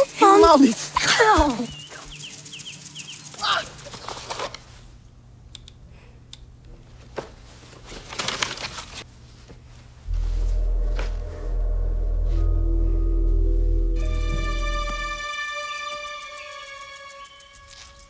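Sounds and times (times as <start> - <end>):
small clicks: 5.5 - 6.5
low music drone: 10.1 - 18.0.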